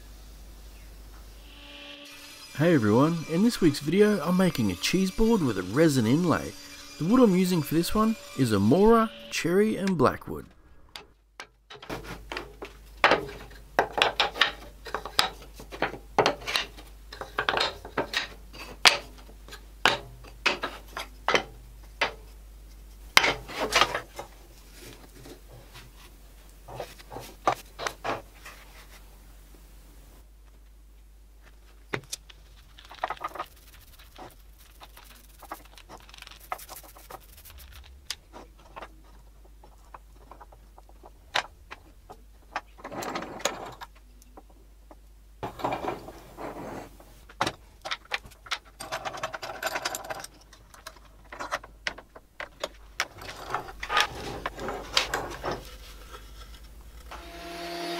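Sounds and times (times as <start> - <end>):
wooden strips clacking together: 11.0 - 22.3, 31.4 - 46.2, 47.2 - 57.0
wood pieces tapping and rubbing: 11.0 - 26.0, 26.6 - 29.0, 30.4 - 57.1.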